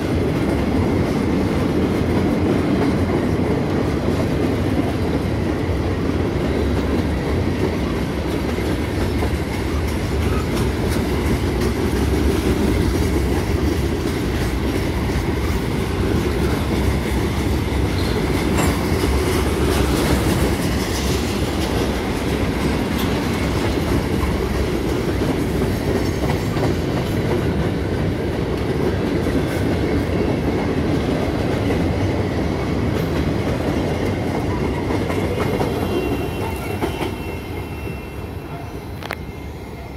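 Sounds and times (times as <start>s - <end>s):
freight train wheels on rail: 0.0s - 39.9s
rail clicks: 0.0s - 39.9s.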